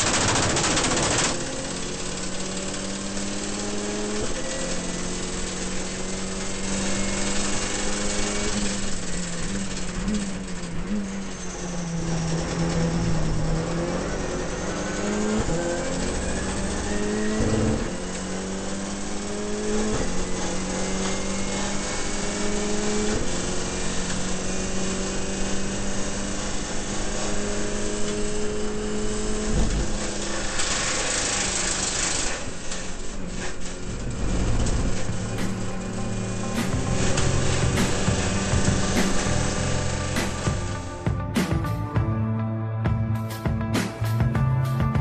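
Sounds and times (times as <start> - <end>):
race car engine at full throttle: 0.0 - 45.0
sharp knock: 36.5 - 39.5.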